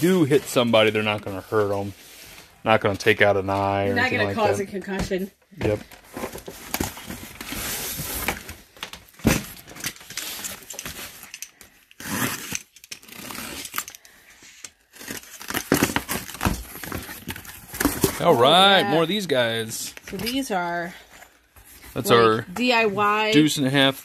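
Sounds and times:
box cutter slitting packing tape: 11.9 - 14.0
cardboard scraping and rustling: 15.0 - 19.6.

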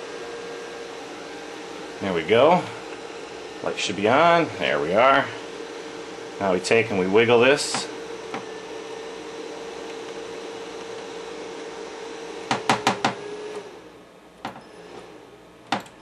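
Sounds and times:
light fixture humming: 1.4 - 13.6.

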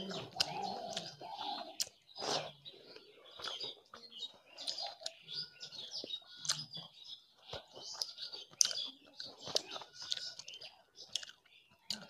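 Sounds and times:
lip smacks: 0.2 - 3.6, 7.9 - 12.0.

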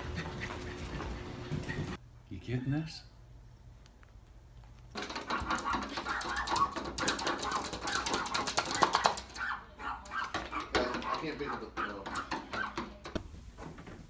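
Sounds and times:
claws scratching glass door: 4.9 - 13.2.

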